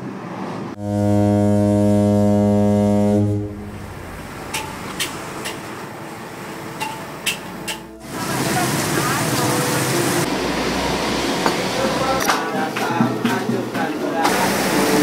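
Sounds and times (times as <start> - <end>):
ship's horn blast: 0.8 - 6.5, 7.8 - 12.6.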